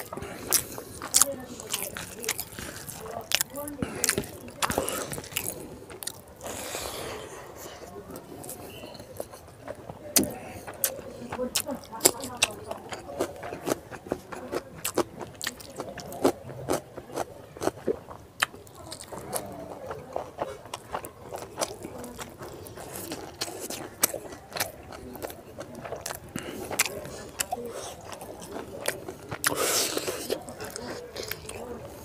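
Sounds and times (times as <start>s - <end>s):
wet mouth clicks: 0.0s - 7.3s, 21.6s - 31.6s
person chewing food: 0.0s - 32.0s.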